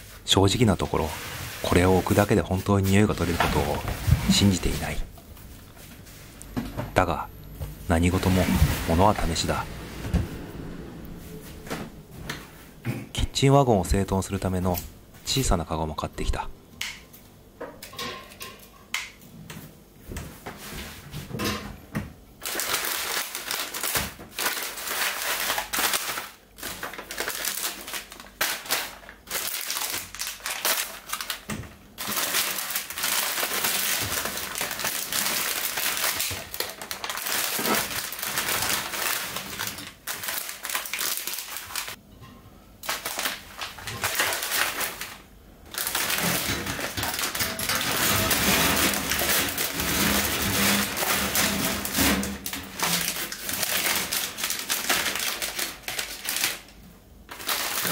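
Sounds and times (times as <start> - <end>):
plastic packets crinkling: 1.6 - 5.0, 22.4 - 42.0, 42.8 - 57.9.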